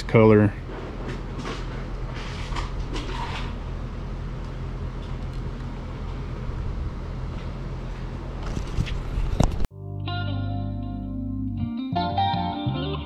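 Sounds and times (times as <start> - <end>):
low mechanical hum: 0.0 - 9.7.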